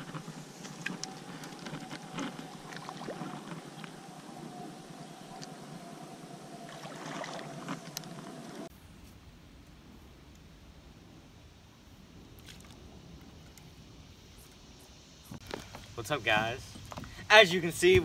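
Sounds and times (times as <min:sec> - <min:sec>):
steady hiss: 0:00.0 - 0:07.0, 0:07.9 - 0:18.0
low wind rumble: 0:00.0 - 0:18.0.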